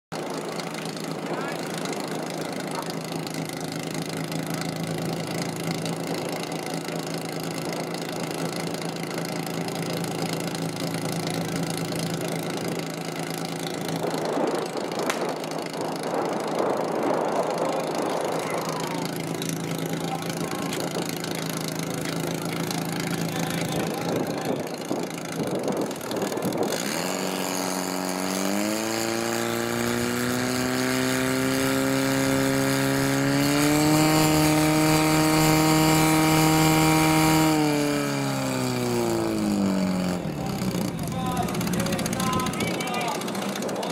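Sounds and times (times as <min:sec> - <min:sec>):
pump engine revving: 0:00.1 - 0:43.9
rush of noise: 0:13.8 - 0:19.3.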